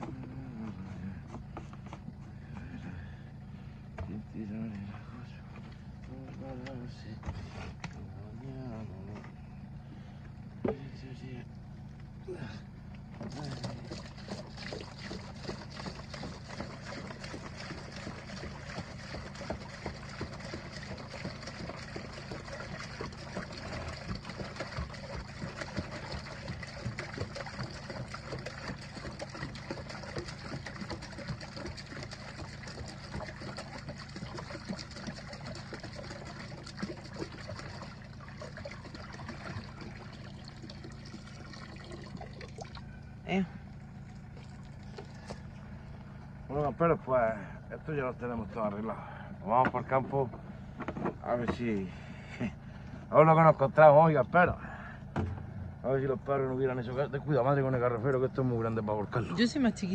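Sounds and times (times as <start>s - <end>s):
water pouring into a tub: 13.2s - 43.0s, 44.0s - 45.6s.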